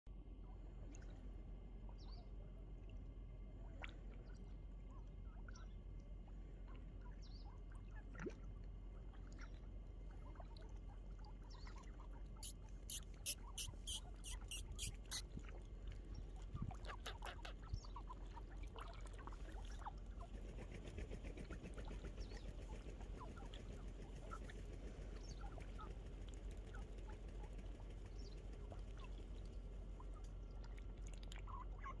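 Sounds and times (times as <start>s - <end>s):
faint water splashing: 0.5s - 32.0s
duck bills clicking in water: 16.7s - 17.7s, 18.8s - 32.0s.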